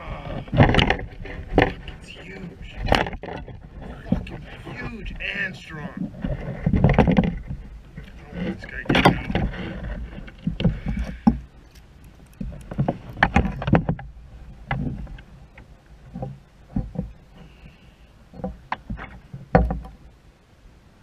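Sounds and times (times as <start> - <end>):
wind rumble on microphone: 0.0 - 17.7.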